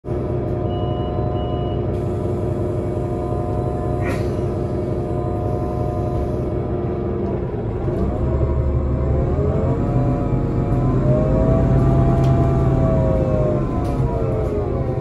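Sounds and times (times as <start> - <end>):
bus engine idling: 0.0 - 15.0
engine revving up: 7.8 - 15.0.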